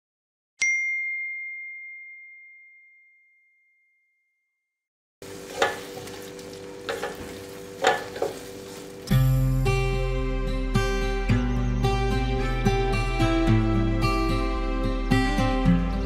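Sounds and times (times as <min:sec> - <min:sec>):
chime tone: 0:00.6 - 0:04.5
spatula scraping a pan: 0:05.2 - 0:09.1
faint sizzle: 0:05.2 - 0:09.5.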